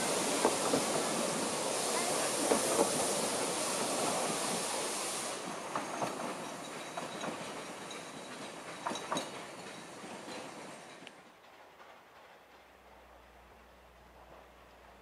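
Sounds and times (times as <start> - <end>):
high hiss: 0.0 - 7.9
railway coaches rolling past: 0.0 - 15.0
wheels clicking over rail joints: 5.6 - 15.0.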